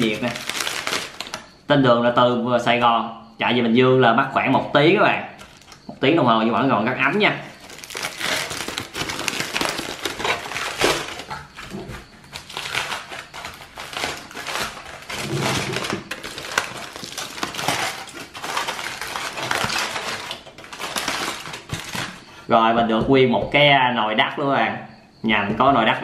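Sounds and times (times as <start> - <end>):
aluminium foil crinkling: 0.0 - 1.5, 5.4 - 5.9, 7.5 - 22.2.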